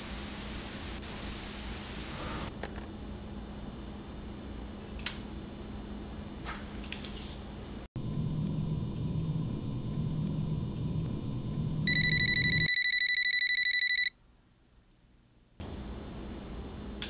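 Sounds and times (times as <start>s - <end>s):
low pulsing hum: 7.8s - 12.7s
electronic ringer trilling: 8.0s - 14.1s.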